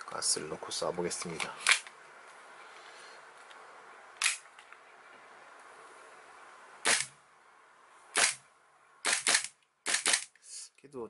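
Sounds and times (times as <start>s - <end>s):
airsoft pistol shots: 6.8s - 7.2s, 8.2s - 8.4s, 9.0s - 10.3s.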